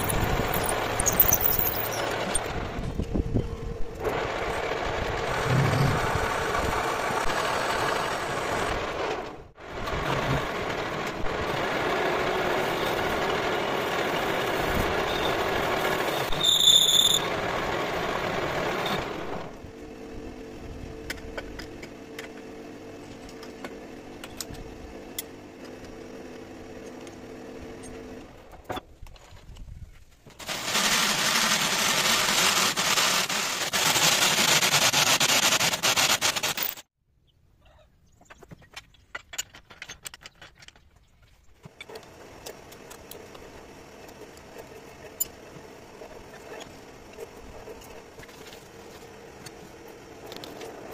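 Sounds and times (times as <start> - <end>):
high machining squeal: 0.0 - 2.4, 15.0 - 17.3.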